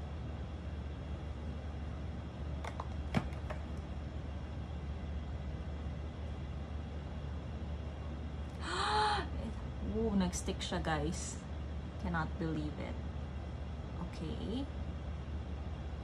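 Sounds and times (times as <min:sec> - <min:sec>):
low room tone hum: 0:00.0 - 0:16.0.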